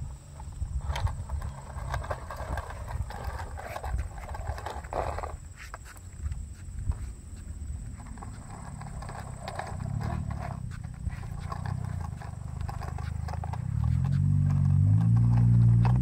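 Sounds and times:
plastic wheels rolling on asphalt: 0.0s - 16.0s.

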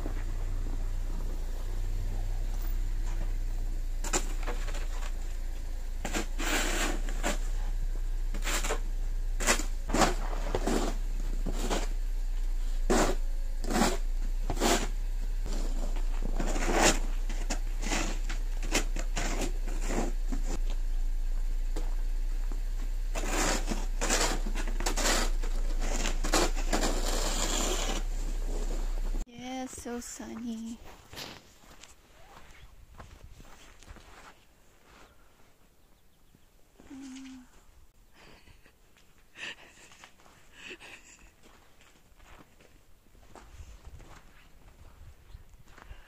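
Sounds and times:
snow shovels scraping pavement: 0.0s - 20.7s, 21.8s - 32.4s.

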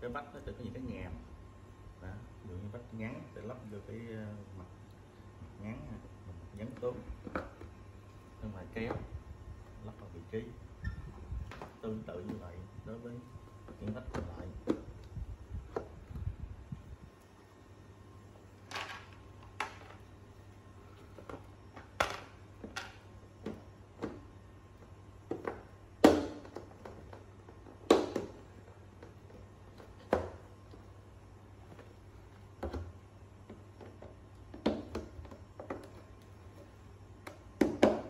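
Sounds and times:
plastic panels clicking and knocking: 18.7s - 20.0s, 21.1s - 24.3s, 25.2s - 30.9s, 32.5s - 38.0s.

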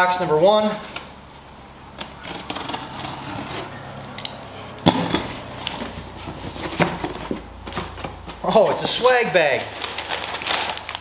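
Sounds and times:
packing tape being cut and pulled: 2.0s - 4.3s, 5.1s - 11.0s
cardboard scraping and clicking: 5.2s - 9.0s.

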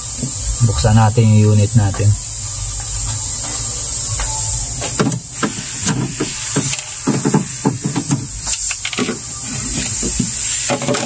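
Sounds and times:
steady hiss: 0.0s - 11.0s
knocking on plastic cover: 4.9s - 8.3s.

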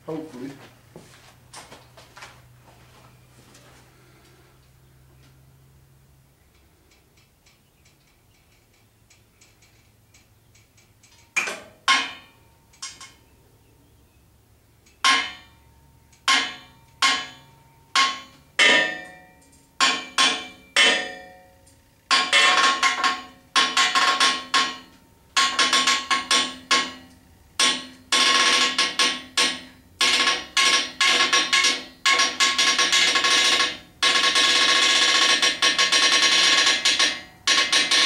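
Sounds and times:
chain hoist ratchet clicking: 21.6s - 38.0s.

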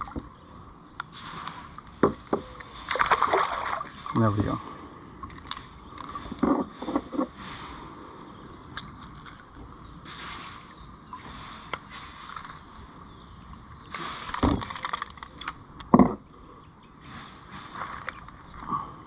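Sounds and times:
fishing reel clicking and rattling: 11.7s - 13.1s.

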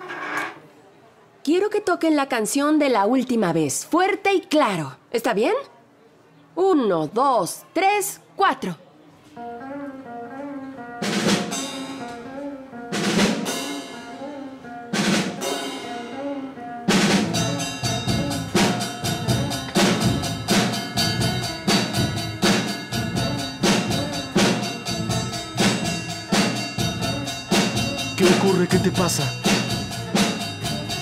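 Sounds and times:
rock band playing instrumental: 10.8s - 31.0s
cymbal crashes: 17.3s - 31.0s.

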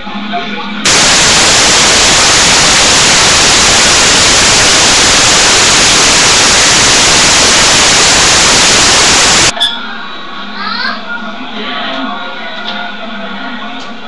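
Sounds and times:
loud static hiss: 0.8s - 9.6s.

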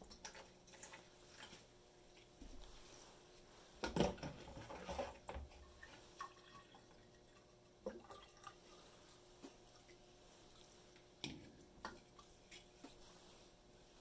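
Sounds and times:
water dripping into a container: 5.5s - 12.4s.

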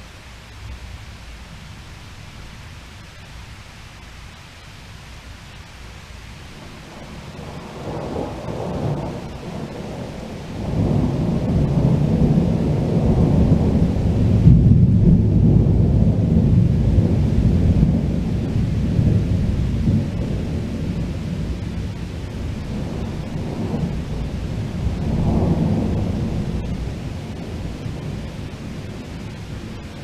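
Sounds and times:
rain hiss: 0.0s - 30.0s
thunder rumbling: 6.4s - 30.0s.

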